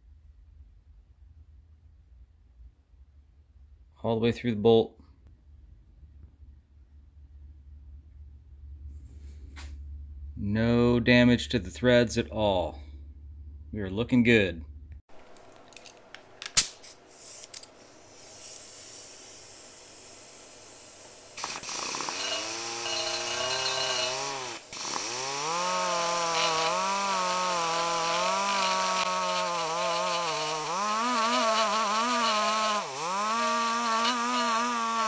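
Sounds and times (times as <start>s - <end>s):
die grinder whining: 20.3s - 35.0s.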